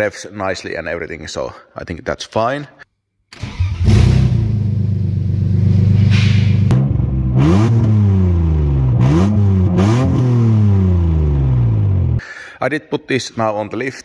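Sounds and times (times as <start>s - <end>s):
car engine starting and idling: 3.3s - 12.2s
engine revving: 3.4s - 12.2s.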